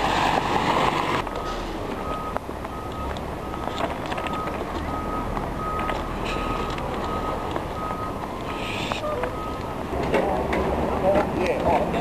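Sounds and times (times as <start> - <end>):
high electronic beep: 1.2 - 9.8
footsteps crunching on ballast: 2.0 - 9.8.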